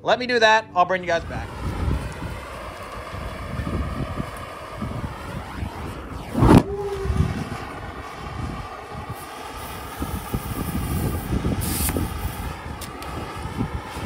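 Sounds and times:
steady background hum: 0.9 - 14.0
flames burning: 1.1 - 14.0
loud ignition burst: 1.2 - 14.0
air hissing: 9.0 - 14.0.

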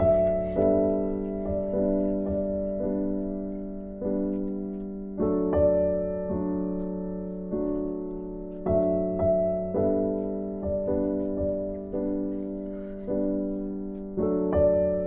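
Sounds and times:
slow solo piano: 0.0 - 15.0.

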